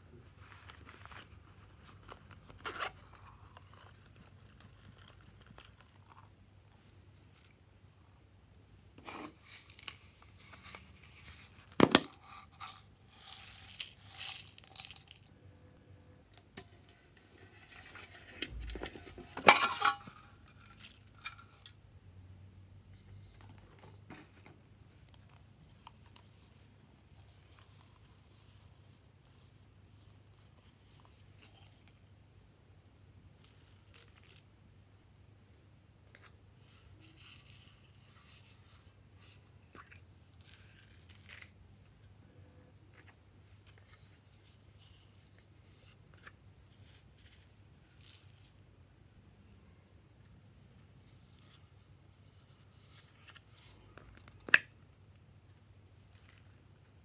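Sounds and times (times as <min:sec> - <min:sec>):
plastic packaging rustling: 0:09.3 - 0:15.3.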